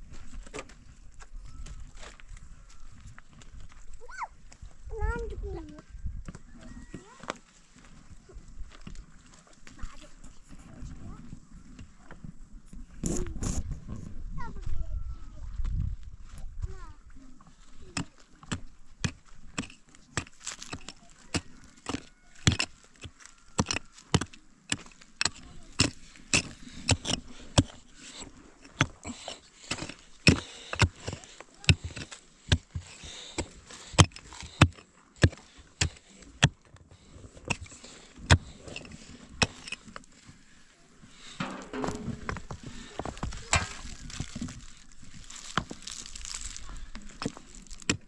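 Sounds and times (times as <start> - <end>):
dirt and stones scraping: 15.8 - 48.0
pick striking stony soil: 17.7 - 40.2, 41.1 - 48.0.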